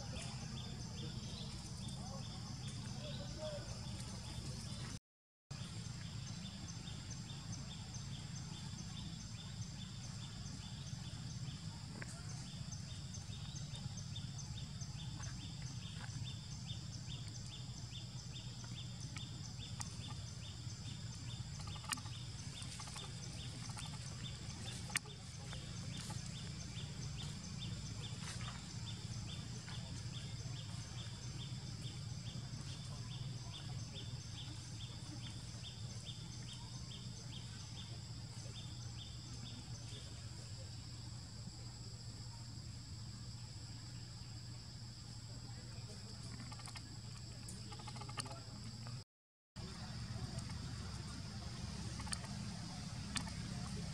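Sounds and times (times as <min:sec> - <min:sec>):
pulsing insect chirp: 0:05.5 - 0:49.0, 0:49.6 - 0:53.9
low steady rumble: 0:05.6 - 0:41.7.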